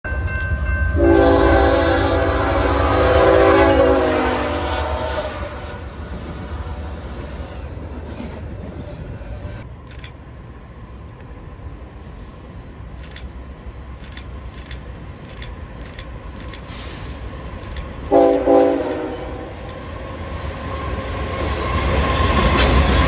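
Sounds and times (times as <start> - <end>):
rumble of passing train: 0.0 - 23.0
locomotive air horn blast: 1.0 - 7.2, 18.1 - 19.6.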